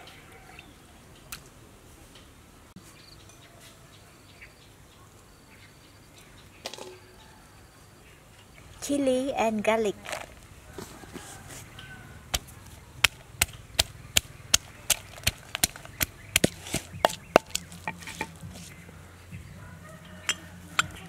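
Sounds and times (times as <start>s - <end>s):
pestle pounding in wooden mortar: 12.3s - 18.7s.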